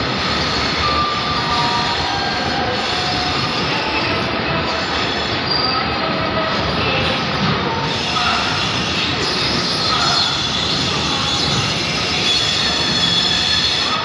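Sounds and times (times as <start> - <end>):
train wheels on rails: 0.0 - 14.0
faint high-pitched wheel squeal: 4.9 - 14.0.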